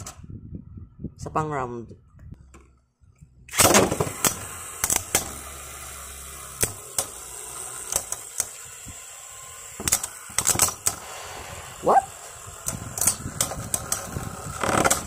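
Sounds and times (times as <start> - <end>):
spinning tops whirring on plastic: 3.6 - 15.0.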